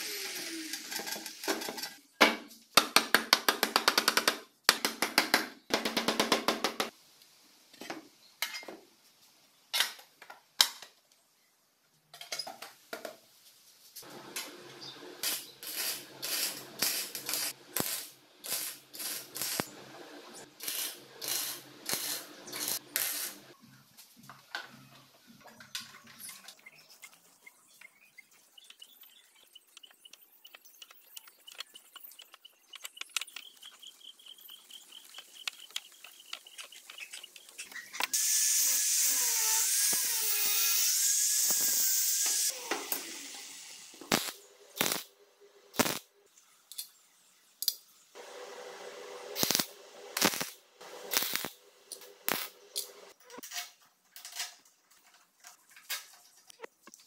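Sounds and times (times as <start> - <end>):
angle grinder winding down: 38.1 - 43.8.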